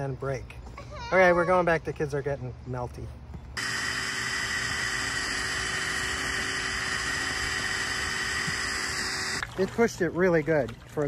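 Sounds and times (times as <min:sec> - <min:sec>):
cordless drill motor whine: 0:03.6 - 0:09.4.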